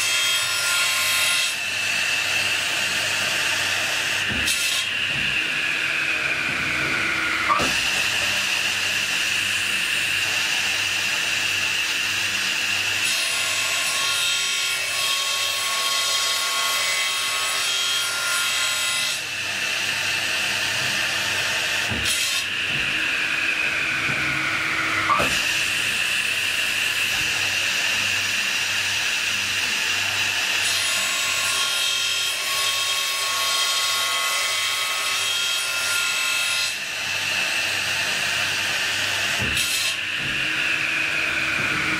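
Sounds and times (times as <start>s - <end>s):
saw grinding through metal: 0.0s - 41.9s
saw blade whine: 1.5s - 13.9s, 18.5s - 32.4s, 36.7s - 41.9s.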